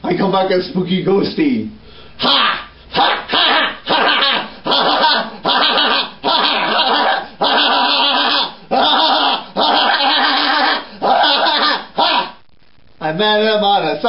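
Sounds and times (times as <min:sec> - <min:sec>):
person making ghostly cries: 0:02.2 - 0:12.4.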